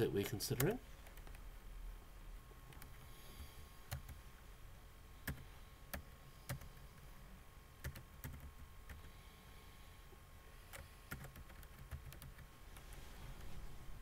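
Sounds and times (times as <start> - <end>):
keyboard keys clicking: 7.8 - 9.1, 10.7 - 12.5.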